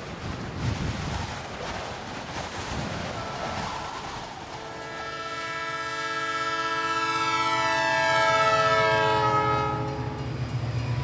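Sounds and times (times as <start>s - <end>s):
train whistle chord: 4.6s - 10.3s.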